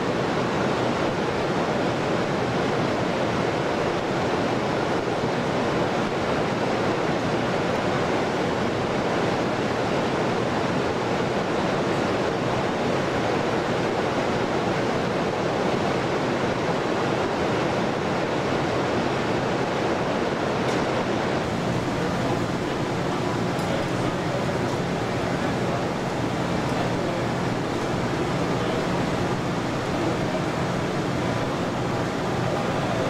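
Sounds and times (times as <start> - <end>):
air rushing through ducts: 21.3 - 33.0.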